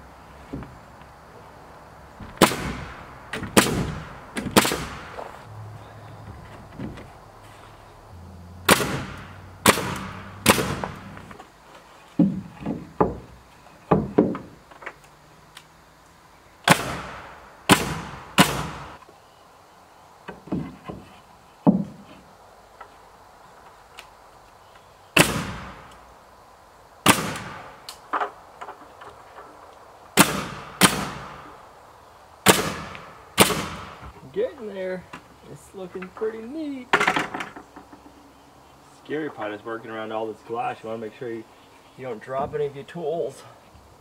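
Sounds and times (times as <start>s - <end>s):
nail gun shots: 2.4s - 5.2s, 8.6s - 11.1s, 16.6s - 19.0s, 25.2s - 25.9s, 27.0s - 27.8s, 30.2s - 31.5s, 32.4s - 34.0s
wooden boards knocking: 6.2s - 7.1s, 12.2s - 15.0s, 20.3s - 22.0s, 36.9s - 38.2s.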